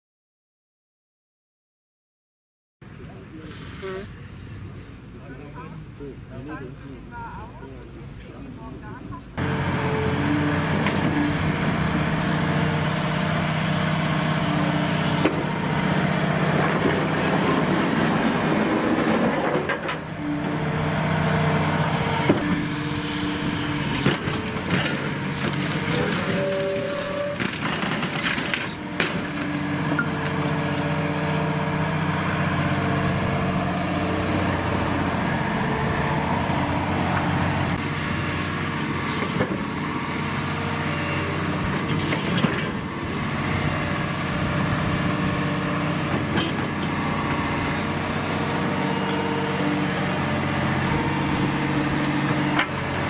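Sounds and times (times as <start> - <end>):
excavator diesel engine: 2.8 - 53.0
wood cracking and knocking: 27.3 - 29.6.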